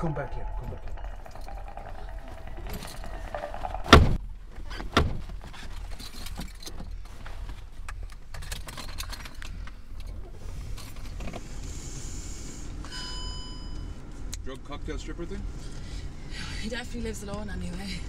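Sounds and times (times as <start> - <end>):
short electronic tone: 0.0 - 4.2
car engine rumbling: 0.0 - 18.0
car door shutting: 3.8 - 5.4.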